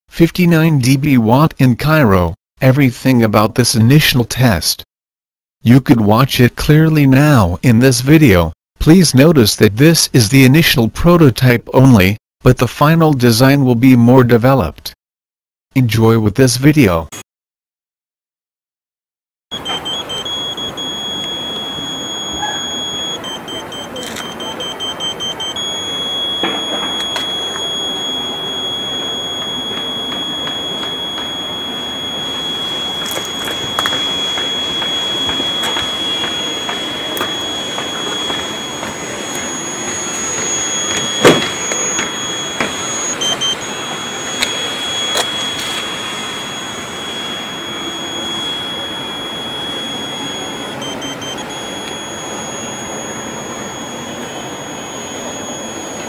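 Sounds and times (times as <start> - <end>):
high-pitched electronic tone: 19.5 - 56.0
steady hiss: 25.8 - 50.8.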